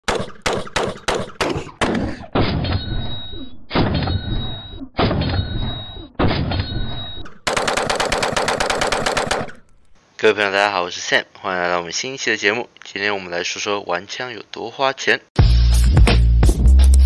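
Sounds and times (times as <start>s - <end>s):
rifle shots with ringing echo: 0.1s - 1.6s, 7.5s - 9.9s.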